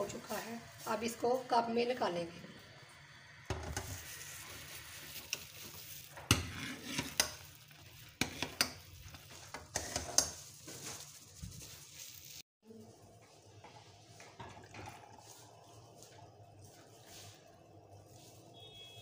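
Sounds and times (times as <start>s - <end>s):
hot pan sizzling hiss: 0.0s - 12.4s
ladle scraping saucepan: 3.6s - 10.6s.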